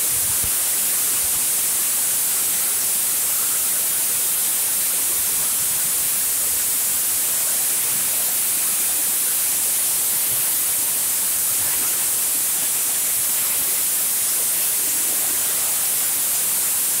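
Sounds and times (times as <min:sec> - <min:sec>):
compressed air hissing from spray gun: 0:00.0 - 0:17.0.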